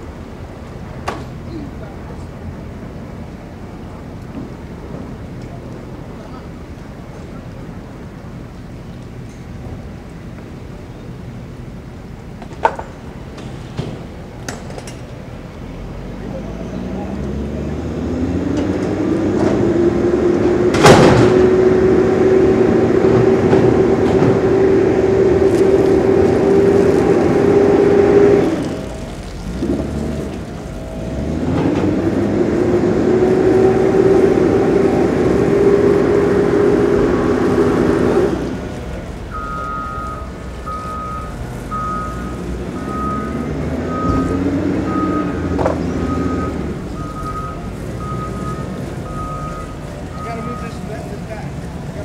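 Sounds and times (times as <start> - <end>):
engine running: 0.0 - 52.0
reversing alarm beeping: 39.3 - 51.0.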